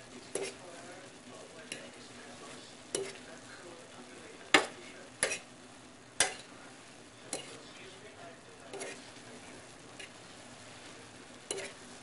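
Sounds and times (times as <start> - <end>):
faint sizzle: 0.0 - 12.0
fork clacking against frying pan: 0.3 - 0.6, 2.9 - 3.2, 4.5 - 5.5, 6.2 - 6.5, 7.3 - 7.6, 8.7 - 9.0, 11.5 - 11.8.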